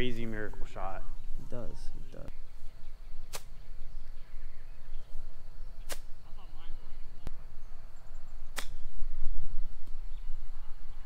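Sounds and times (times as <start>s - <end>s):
golf club striking ball: 8.5s - 8.8s.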